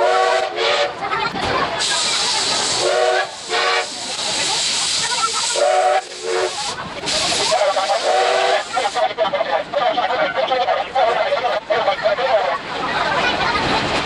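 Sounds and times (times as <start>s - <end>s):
steam locomotive hissing: 1.6s - 9.7s.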